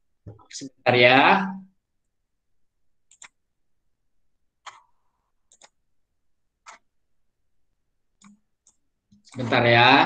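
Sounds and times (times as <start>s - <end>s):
computer mouse clicks: 3.1s - 3.4s, 4.6s - 5.8s, 6.6s - 6.9s, 8.2s - 9.5s.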